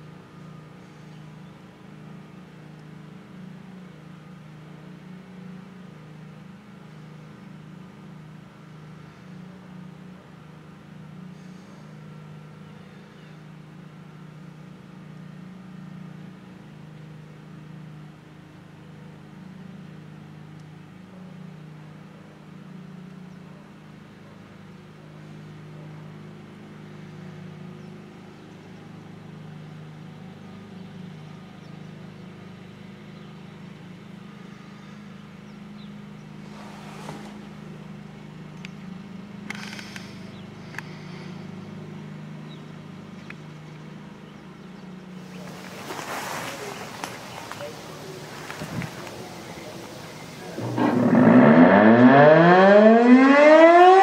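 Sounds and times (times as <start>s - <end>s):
car engine idling: 45.2s - 52.0s.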